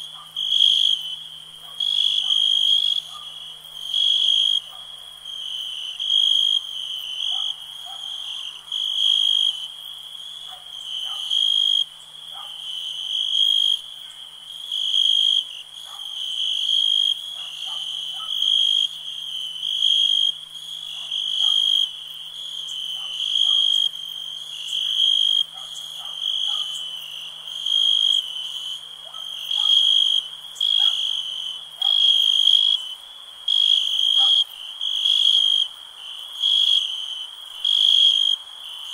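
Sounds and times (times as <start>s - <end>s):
frog calls: 0.0s - 4.8s, 19.6s - 22.0s, 22.6s - 24.0s, 24.6s - 32.9s, 33.5s - 35.7s, 36.4s - 36.9s, 37.6s - 38.9s
crickets chirping: 0.0s - 38.9s.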